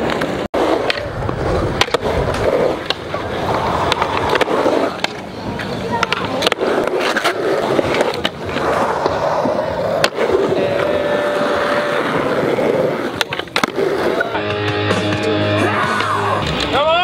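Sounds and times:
skateboard clacking on ground: 0:00.0 - 0:14.6
skateboard wheels rolling on concrete: 0:00.0 - 0:17.0
music with held notes: 0:14.3 - 0:16.8.

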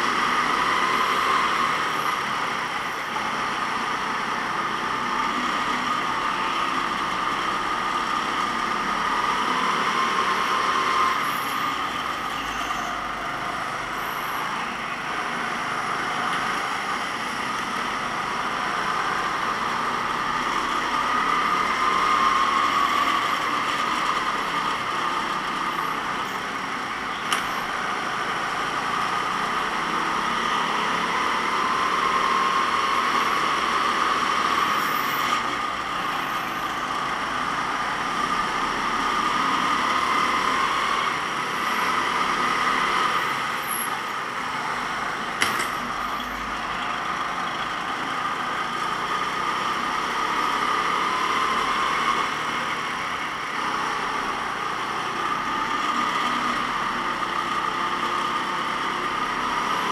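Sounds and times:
go-kart engine revving: 0:15.2 - 0:59.9.

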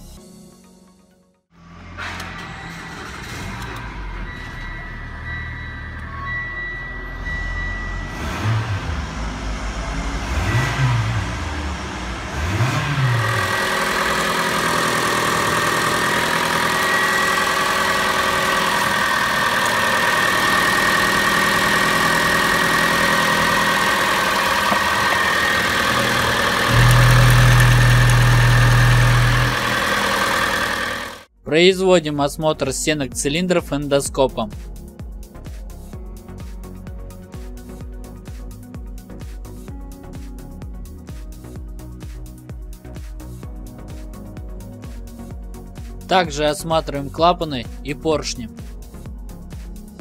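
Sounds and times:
car engine idling and revving: 0:01.6 - 0:31.3, 0:34.8 - 0:46.1
loud low hum: 0:03.3 - 0:31.3.

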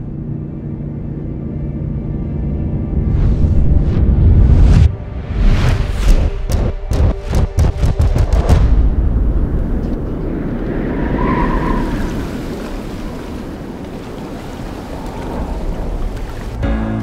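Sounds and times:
rushing wind: 0:02.7 - 0:16.7
sea surf: 0:10.5 - 0:17.0.

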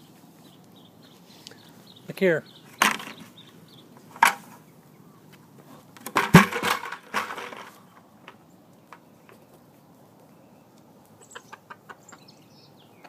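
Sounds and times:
bucket knock and rattle: 0:02.8 - 0:03.3, 0:04.2 - 0:04.5, 0:06.0 - 0:07.8
plastic bucket scraping on gravel: 0:05.6 - 0:07.9.

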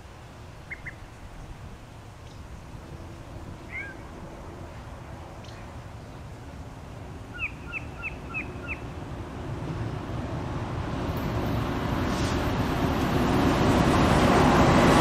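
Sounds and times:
diesel train rumbling: 0:00.0 - 0:15.0
bird chirping: 0:00.7 - 0:01.5, 0:02.2 - 0:04.2, 0:05.3 - 0:06.2, 0:07.3 - 0:08.9.

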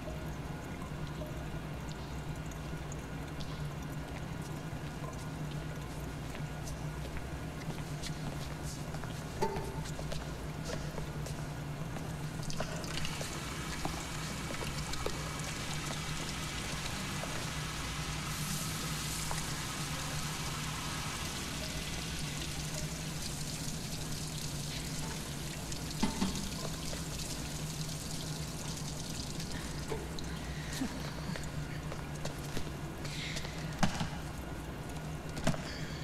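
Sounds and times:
steady low hum: 0:00.0 - 0:36.0
water running into steel sink: 0:12.9 - 0:30.1.

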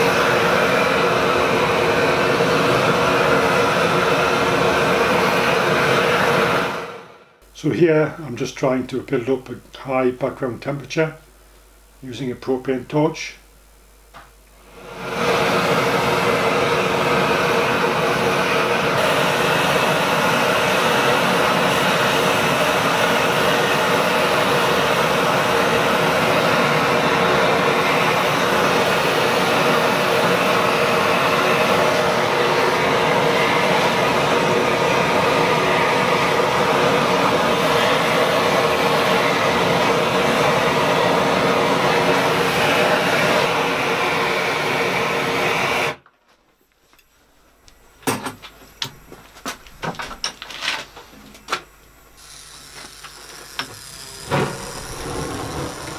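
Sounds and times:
propane torch hissing: 0:00.0 - 0:07.4, 0:14.6 - 0:46.0, 0:52.1 - 0:55.9.

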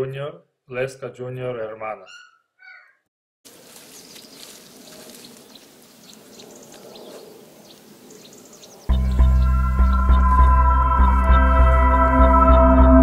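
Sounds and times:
faint bird chirps: 0:02.0 - 0:03.1.

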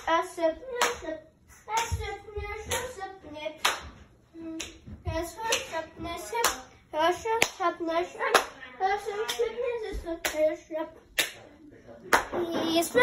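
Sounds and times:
rhythmic hand claps: 0:00.0 - 0:08.6, 0:09.2 - 0:10.6, 0:11.2 - 0:11.5, 0:12.1 - 0:13.0.

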